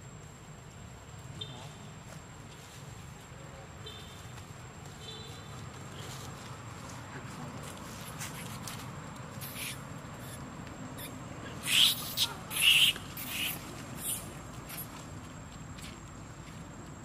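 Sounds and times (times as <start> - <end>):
monkeys screaming: 9.4 - 10.4, 11.0 - 14.3.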